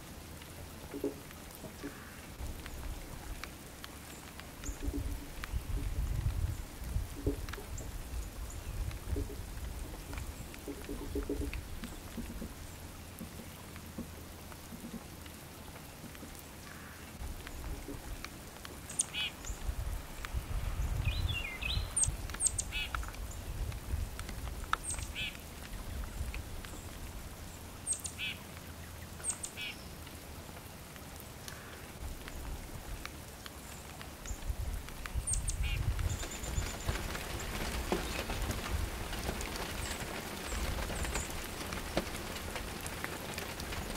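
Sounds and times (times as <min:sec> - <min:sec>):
songbird calling: 0:18.8 - 0:19.6, 0:20.8 - 0:23.5, 0:24.8 - 0:26.9, 0:27.5 - 0:29.9, 0:35.1 - 0:38.4.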